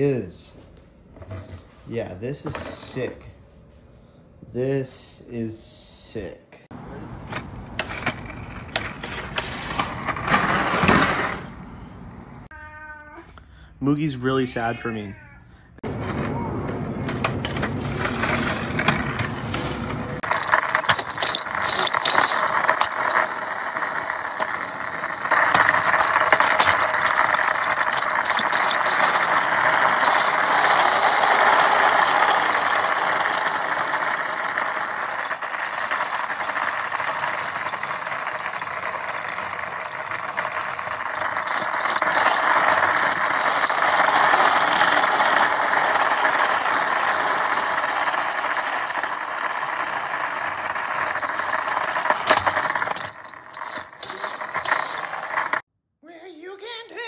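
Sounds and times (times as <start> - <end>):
skateboard mount rattling: 16.0 - 55.6.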